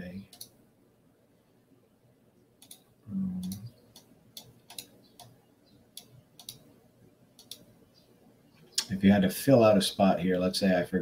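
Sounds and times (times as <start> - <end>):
computer mouse clicking: 0.3 - 0.6, 2.6 - 5.4, 6.0 - 6.7, 7.4 - 7.7.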